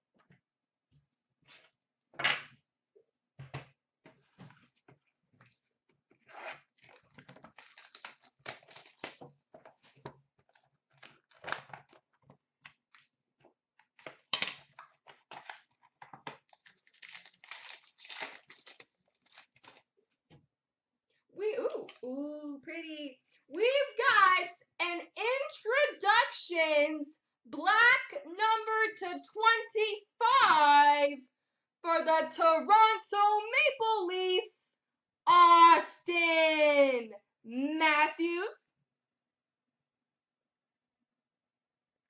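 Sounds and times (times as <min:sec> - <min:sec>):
packaging tearing and crinkling: 0:06.8 - 0:09.3, 0:10.5 - 0:12.0, 0:14.0 - 0:19.9.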